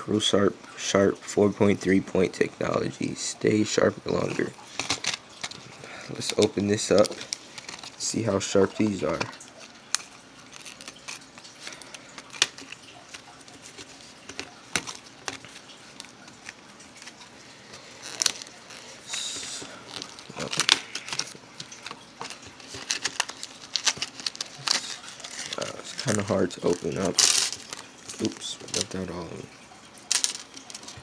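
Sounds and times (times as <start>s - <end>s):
plastic blister pack clicks and crinkles: 4.7s - 8.0s, 9.1s - 18.9s, 19.5s - 29.0s.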